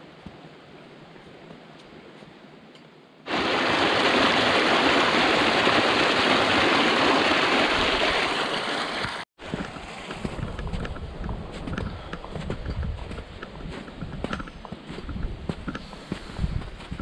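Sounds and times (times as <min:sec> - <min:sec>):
stream rushing under snow: 0:03.3 - 0:10.6.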